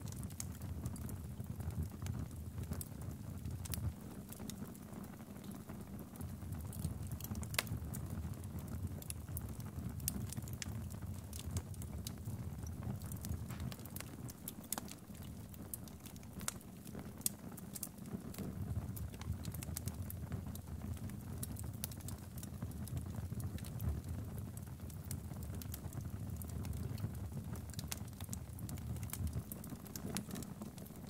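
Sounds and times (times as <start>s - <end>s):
low rumble of burning logs: 0.0s - 31.0s
wood fire crackling: 0.0s - 31.0s
sharp pops and snaps: 11.3s - 19.9s, 26.6s - 31.0s.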